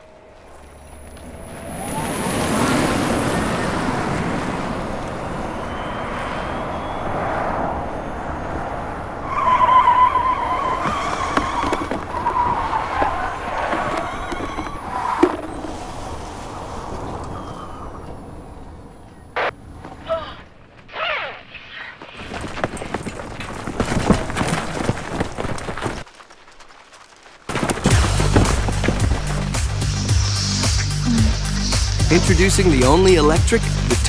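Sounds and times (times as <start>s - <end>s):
tyre and road noise: 0.0s - 34.0s
tyres squealing: 9.2s - 16.2s, 20.0s - 26.1s, 27.6s - 34.0s.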